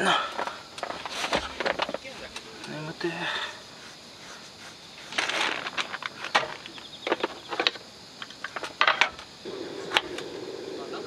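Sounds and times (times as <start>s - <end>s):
sharp clicks and light knocks: 0.4s - 2.8s
rustle of objects handled: 0.4s - 9.0s.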